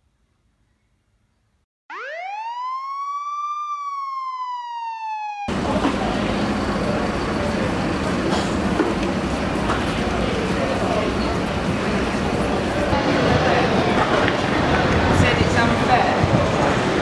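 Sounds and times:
police siren wailing: 1.9 - 6.4
busy city street noise: 5.5 - 17.0.

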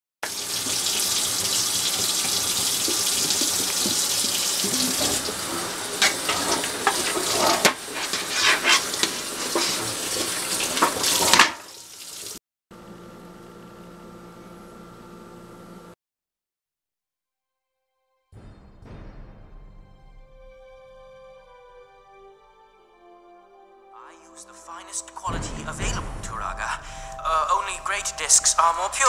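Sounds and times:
tap running into sink: 0.2 - 7.8
metal pans knocking and clattering: 2.8 - 11.6.

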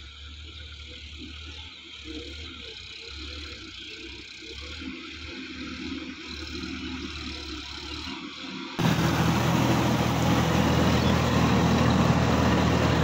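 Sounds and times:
tractor diesel engine running: 8.8 - 13.0.

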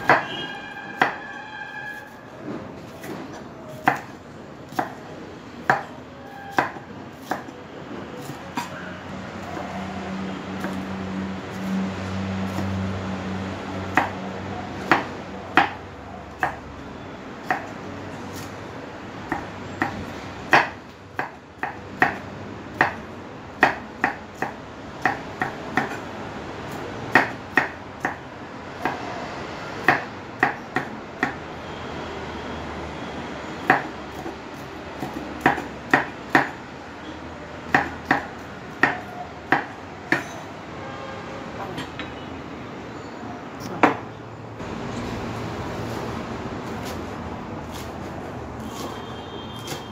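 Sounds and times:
knife chopping on wooden board: 0.0 - 0.3, 1.0 - 1.2, 3.0 - 5.0, 5.6 - 7.5, 19.3 - 22.2, 23.6 - 26.0, 27.1 - 28.2, 35.0 - 36.6, 37.7 - 40.4, 47.6 - 49.9.

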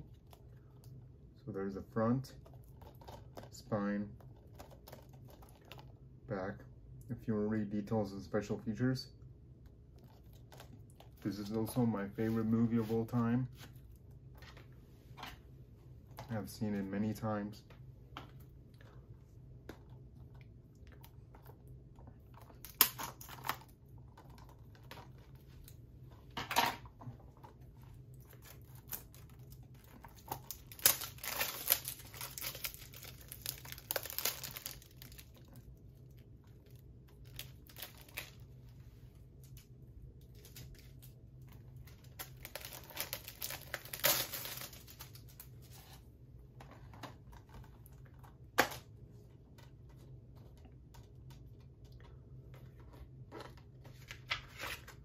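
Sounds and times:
plastic wrapping crinkling and tearing: 22.3 - 25.8, 28.1 - 38.6, 39.4 - 45.9.

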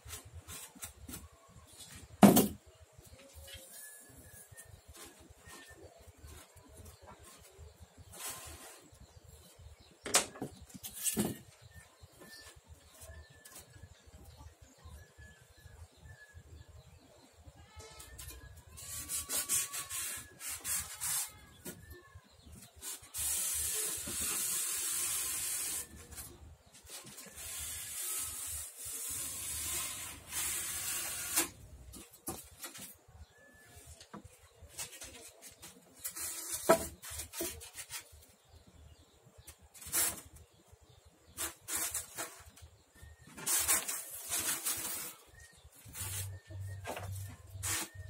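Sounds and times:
foam board scrapes and clicks: 3.5 - 9.8, 18.0 - 38.5, 39.4 - 48.0.

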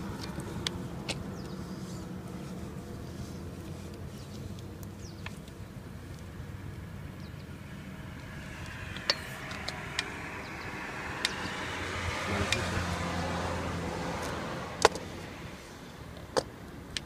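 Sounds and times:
motor vehicle passing: 6.4 - 16.2.

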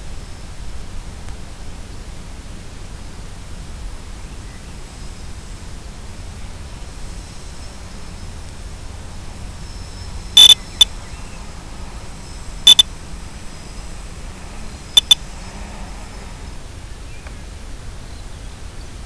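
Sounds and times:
static hiss: 0.0 - 16.6
high-pitched electronic double beep: 10.4 - 10.9.

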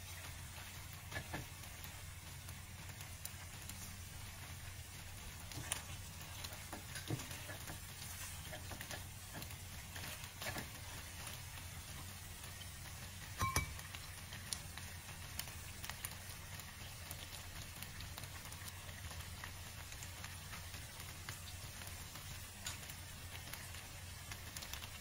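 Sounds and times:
utensil stirring and scraping: 0.0 - 2.0, 2.9 - 12.7
sauce bubbling and sizzling in pan: 0.0 - 25.0
ringing clink: 13.4 - 13.8.

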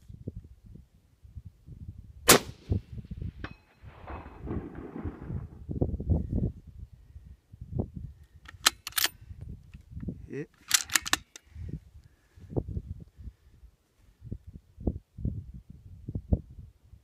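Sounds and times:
rifle bolt metallic clicks: 8.4 - 9.2, 10.6 - 11.5.

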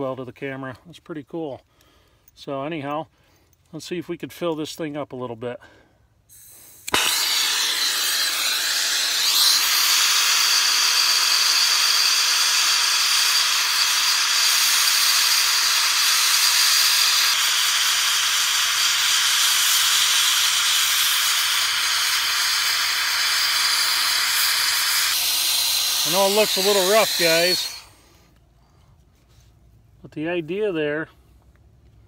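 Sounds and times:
gas torch hissing: 6.3 - 28.1.

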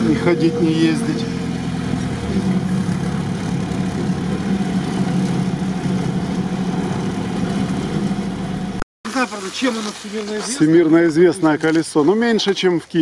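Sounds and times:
vehicle engine running: 0.0 - 8.8
road noise: 0.0 - 12.6.

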